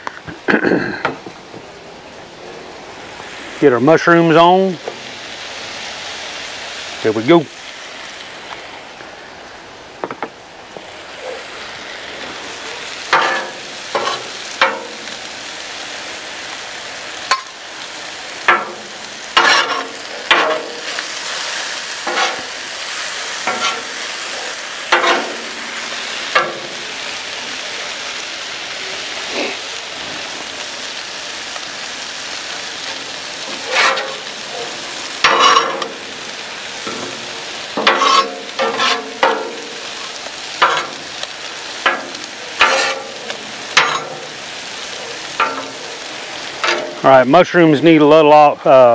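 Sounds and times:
mushrooms sizzling in oil: 0:00.2 - 0:48.9
metal spatula scraping griddle: 0:12.2 - 0:15.2, 0:18.4 - 0:26.8, 0:32.8 - 0:47.1.

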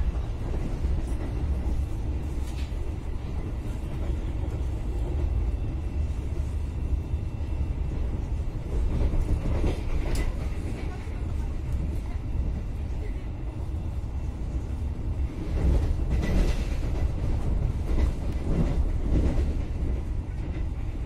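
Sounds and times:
train carriage rumbling: 0:00.0 - 0:21.0.

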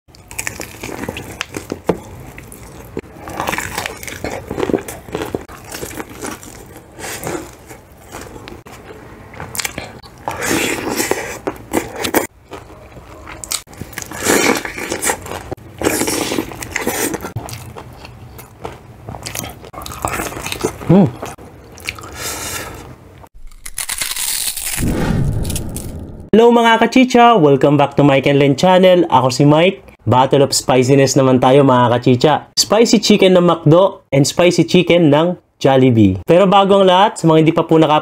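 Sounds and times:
crispy chicken crunching: 0:00.1 - 0:22.8, 0:23.4 - 0:24.8
wet chewing: 0:00.1 - 0:24.8.

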